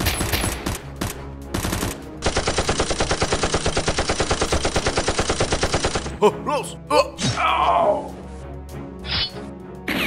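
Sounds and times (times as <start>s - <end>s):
rapid automatic gunfire: 0.0s - 6.1s.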